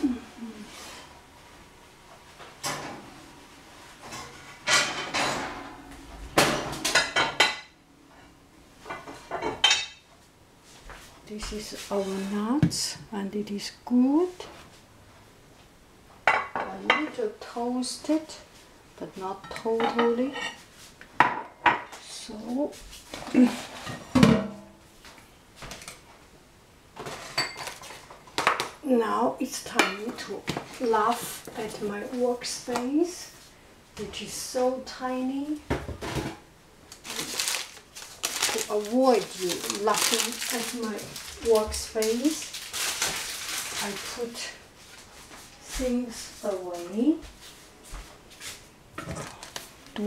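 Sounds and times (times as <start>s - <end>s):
metal kitchenware clattering: 4.0s - 7.7s, 27.0s - 28.0s.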